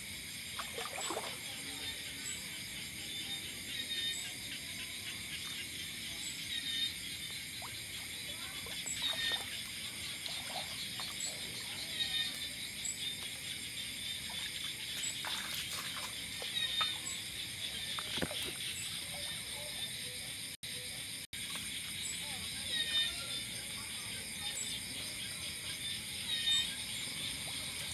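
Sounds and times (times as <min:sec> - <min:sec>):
insect chirps: 0:00.0 - 0:27.9
insects buzzing: 0:00.0 - 0:27.9
water sloshing: 0:00.6 - 0:01.7, 0:14.3 - 0:17.2.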